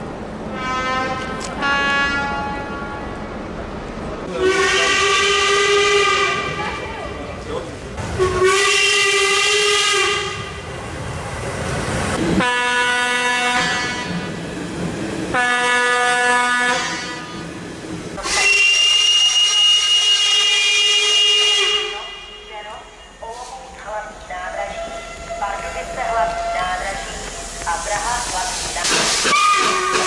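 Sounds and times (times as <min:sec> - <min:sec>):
steam locomotive whistle blasts: 0:04.4 - 0:06.5, 0:08.2 - 0:10.5, 0:18.2 - 0:22.5, 0:28.9 - 0:30.0
steam hissing: 0:18.2 - 0:20.2, 0:26.4 - 0:30.0.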